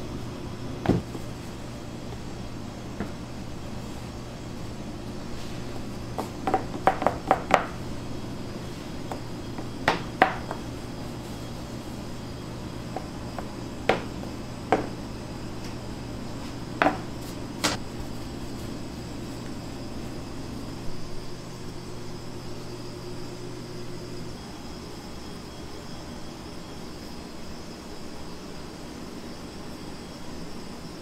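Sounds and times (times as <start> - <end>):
steady low hum: 0.0 - 31.0
bakery tools and trays knocking: 6.1 - 7.8, 9.1 - 10.7, 12.9 - 15.0, 16.8 - 17.8.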